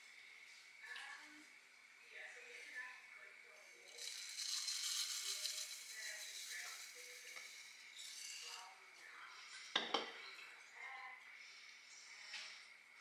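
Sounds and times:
oats pouring into pot: 0:03.7 - 0:08.7
spoon knocking pot: 0:09.8 - 0:10.2.

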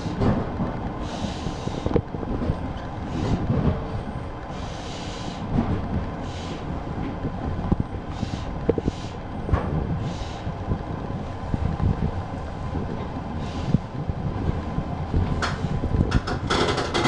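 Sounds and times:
train running gear rumble: 0:00.0 - 0:17.0
knocks and rattles: 0:15.2 - 0:17.0.

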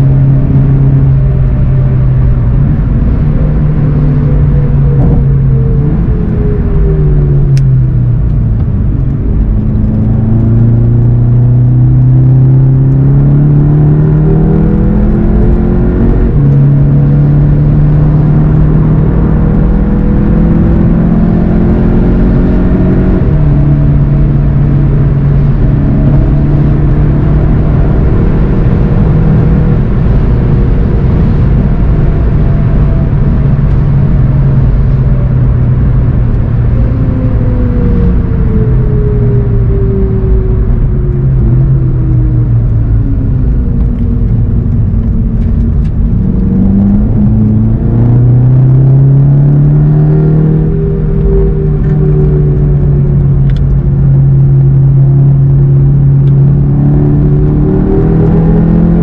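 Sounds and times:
car engine accelerating hard: 0:00.0 - 0:59.0.

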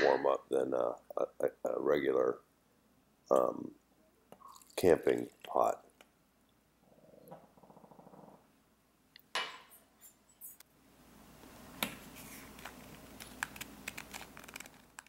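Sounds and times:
soft low hiss: 0:00.0 - 0:15.0.

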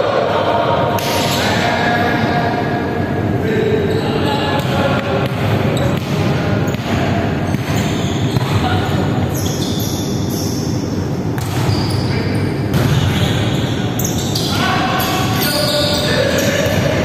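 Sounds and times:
players' voices: 0:00.0 - 0:09.6, 0:11.8 - 0:17.0.

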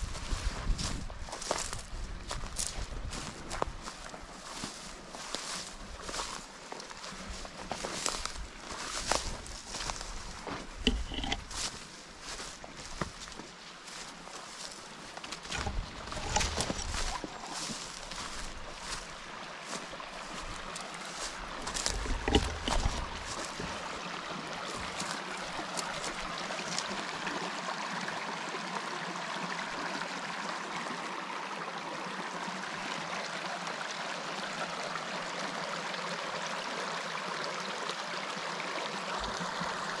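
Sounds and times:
footsteps: 0:00.0 - 0:27.0
river flowing: 0:00.0 - 0:40.0.

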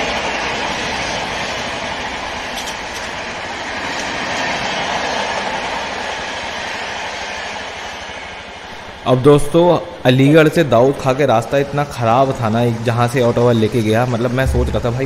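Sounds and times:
train wheels rushing on rail: 0:00.0 - 0:15.0
wheels clicking over rail joints: 0:01.9 - 0:04.2.

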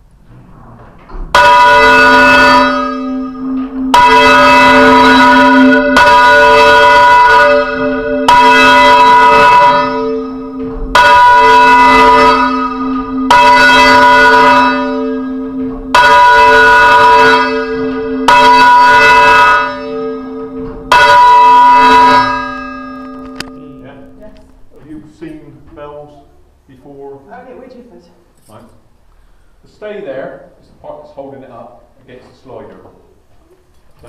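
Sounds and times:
church bell clanging: 0:01.3 - 0:24.4.

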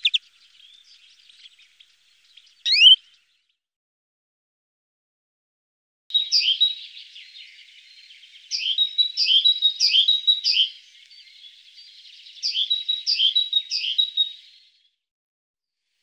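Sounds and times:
songbird chirping: 0:00.0 - 0:03.6, 0:06.1 - 0:14.9.

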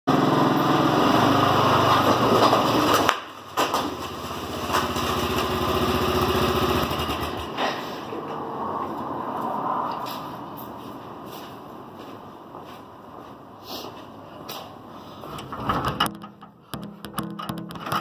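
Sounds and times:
quad engine passing by: 0:00.1 - 0:10.6.

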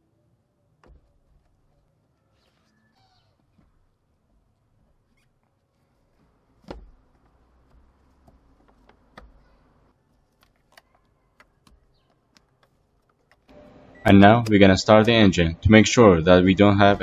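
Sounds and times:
plastic parts clicking and knocking: 0:06.2 - 0:13.6.

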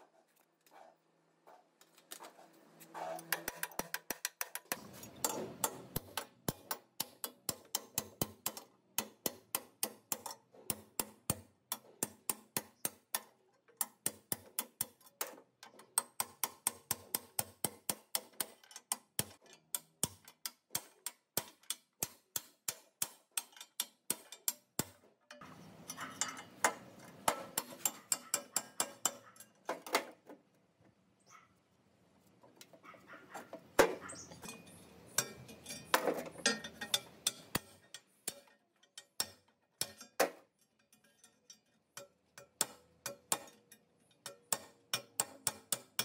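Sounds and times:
metal-on-metal scraping and rattling: 0:00.2 - 0:08.7, 0:18.2 - 0:22.0, 0:23.1 - 0:30.4, 0:32.3 - 0:46.0.

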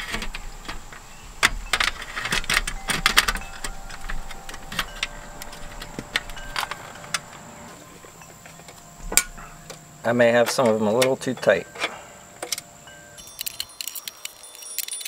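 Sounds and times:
hard drive clicking in metal chassis: 0:00.0 - 0:09.8.

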